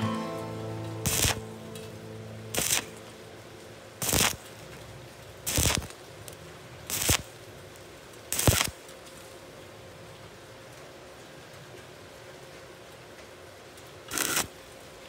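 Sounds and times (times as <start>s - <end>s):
welding arc hissing and crackling: 1.0s - 1.4s, 2.5s - 3.0s, 4.0s - 4.4s, 5.4s - 7.5s, 8.3s - 8.9s, 14.1s - 14.6s.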